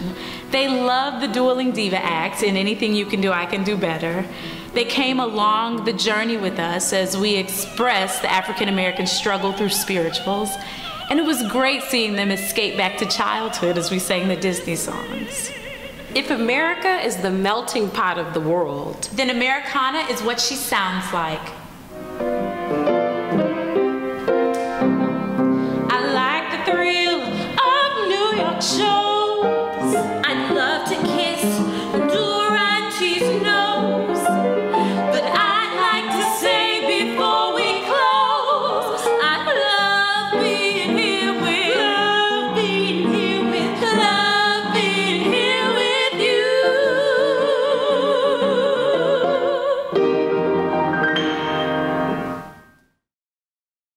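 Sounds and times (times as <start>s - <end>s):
women singing operatic duet: 0.0s - 19.0s, 25.9s - 50.0s
piano: 0.0s - 53.0s.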